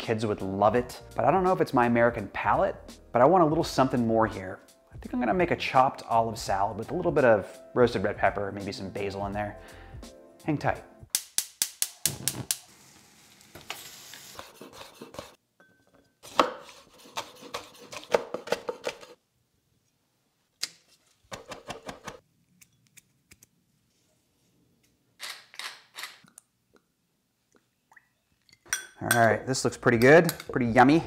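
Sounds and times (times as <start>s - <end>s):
gas burner flame hissing: 11.8s - 14.5s
knife chopping on cutting board: 16.3s - 19.0s.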